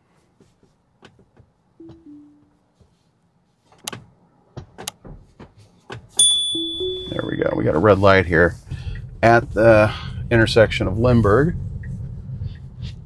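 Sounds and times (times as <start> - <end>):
falling two-note car chime: 1.8 - 2.5, 6.2 - 7.8.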